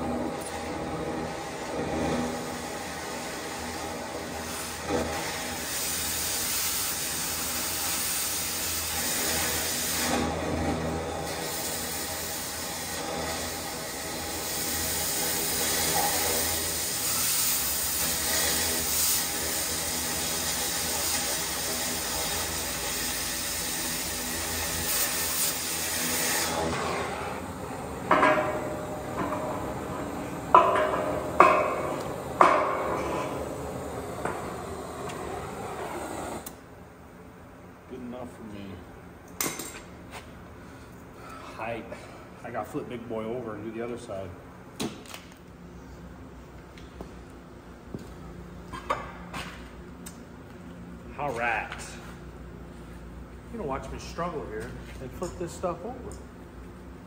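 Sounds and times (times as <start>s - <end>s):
cutting torch hissing: 0.0s - 36.6s.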